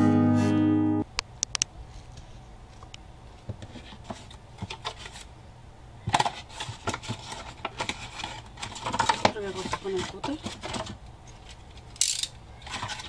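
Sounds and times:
cardstock rustling: 0:06.1 - 0:11.0.

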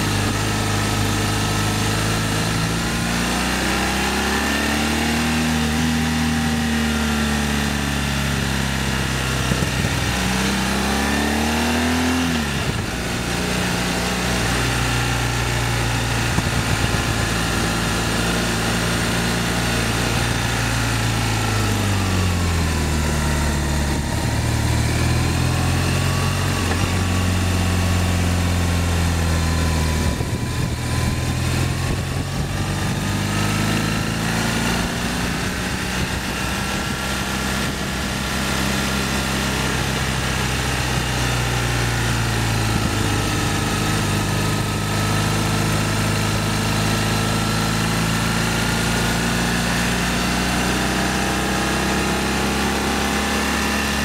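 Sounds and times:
motorcycle engine revving: 0:00.0 - 0:54.0
wind rush: 0:16.2 - 0:17.3, 0:30.0 - 0:33.2, 0:34.8 - 0:37.0.

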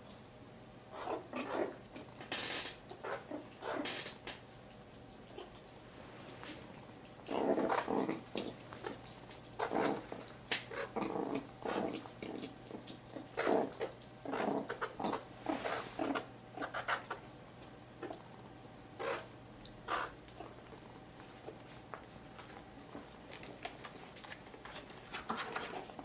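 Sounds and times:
meerkat growling: 0:00.9 - 0:04.3, 0:07.2 - 0:17.2, 0:18.0 - 0:18.3, 0:19.0 - 0:20.6.

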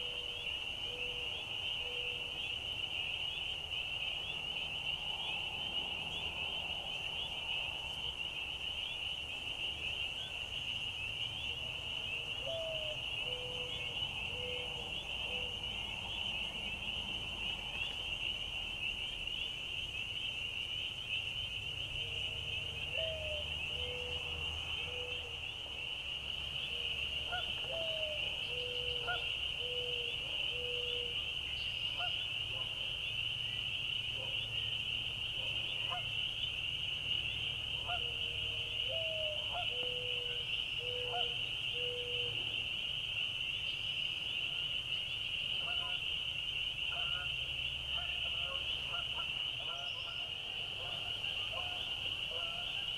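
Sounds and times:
trilling frogs chorus: 0:00.0 - 0:52.9
bird cooing: 0:12.4 - 0:15.6, 0:22.9 - 0:24.1, 0:27.3 - 0:31.1, 0:38.9 - 0:42.3.

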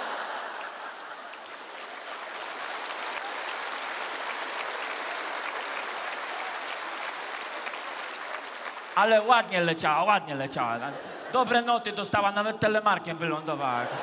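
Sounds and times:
audience laughing: 0:00.0 - 0:01.9, 0:10.3 - 0:14.0
audience applause: 0:00.0 - 0:09.7.

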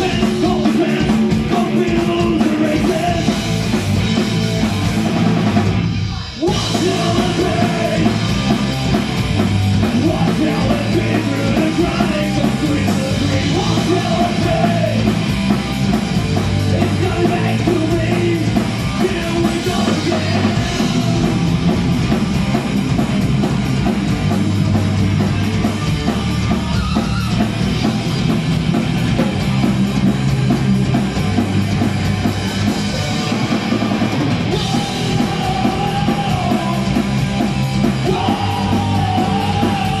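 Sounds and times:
rock band playing live: 0:00.0 - 0:40.0
singer shouting: 0:34.5 - 0:36.9, 0:38.0 - 0:40.0.

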